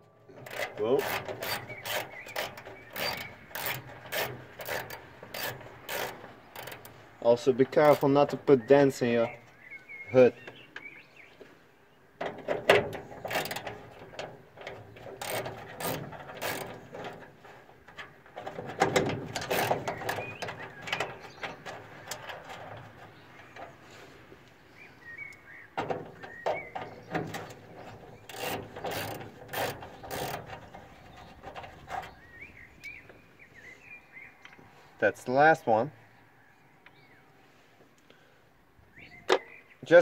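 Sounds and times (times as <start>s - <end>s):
ratchet wrench clicking: 0.4s - 7.0s, 13.3s - 13.6s, 15.2s - 16.8s, 19.4s - 20.2s, 28.3s - 30.5s.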